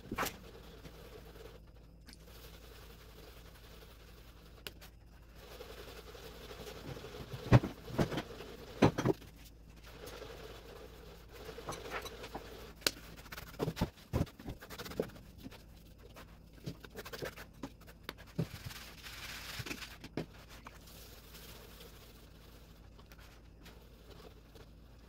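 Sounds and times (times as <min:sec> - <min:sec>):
hands rubbing grains in bowl: 0:00.4 - 0:07.5, 0:16.9 - 0:25.0
grains shaken through sieve: 0:02.2 - 0:08.8, 0:18.4 - 0:22.9.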